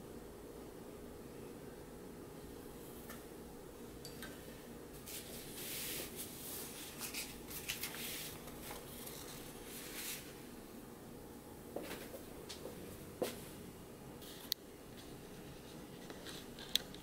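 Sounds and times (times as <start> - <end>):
low room hum: 0.0 - 17.0
paper rustling and crackling: 6.6 - 10.3.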